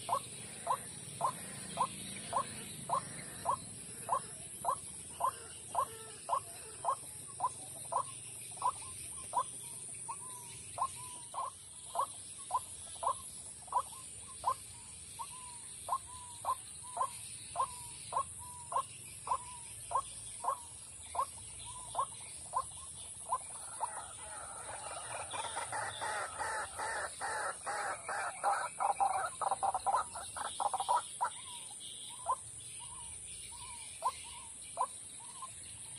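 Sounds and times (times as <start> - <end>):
waterhen calling: 23.3 - 31.4.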